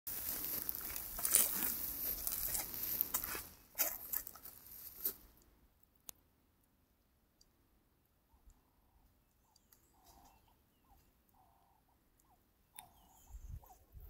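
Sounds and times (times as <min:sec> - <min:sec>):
rustling and crackling: 0:00.1 - 0:05.4.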